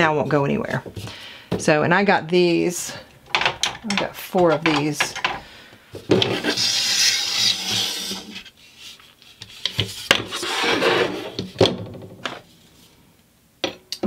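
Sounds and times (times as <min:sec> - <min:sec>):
wooden rod scraping on wood: 0:06.1 - 0:11.5.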